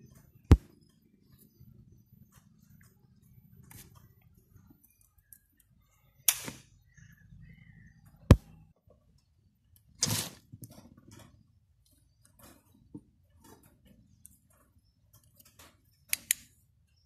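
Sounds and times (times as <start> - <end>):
electrical snaps: 6.3 - 6.7, 16.1 - 16.6.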